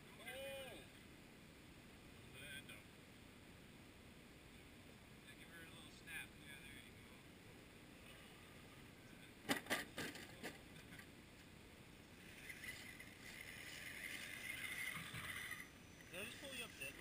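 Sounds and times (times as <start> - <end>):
small electric motor whining: 12.2 - 17.0.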